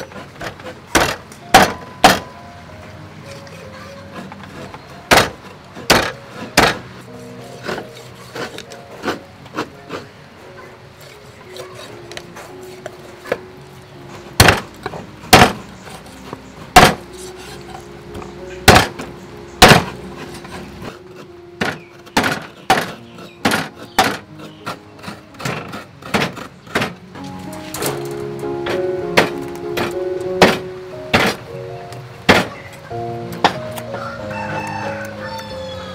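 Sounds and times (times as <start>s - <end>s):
soft background music: 0.0s - 35.9s
cleaver chopping on wooden board: 0.4s - 2.2s, 5.1s - 6.8s, 14.4s - 14.7s, 15.3s - 15.7s, 16.8s - 17.0s, 18.7s - 20.0s, 21.6s - 27.0s, 32.3s - 32.6s.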